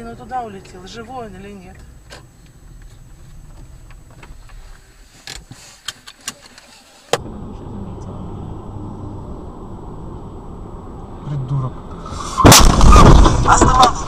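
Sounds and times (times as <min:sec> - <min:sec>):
low road rumble: 0:00.0 - 0:14.0
steady low engine hum: 0:07.1 - 0:14.0.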